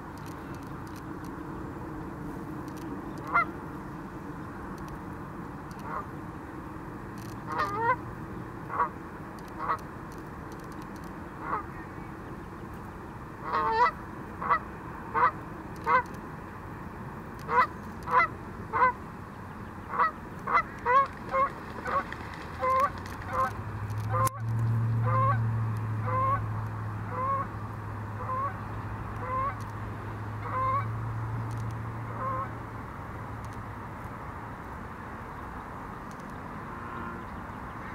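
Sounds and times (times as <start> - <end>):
low steady hum: 0.0 - 37.9
goose honking: 3.2 - 3.6, 7.5 - 8.0, 11.4 - 11.7, 13.4 - 16.1, 17.5 - 19.0, 19.9 - 24.4, 25.0 - 25.4, 26.0 - 26.4, 27.1 - 27.5, 28.2 - 28.6, 29.2 - 29.6, 30.4 - 30.9, 32.1 - 32.5.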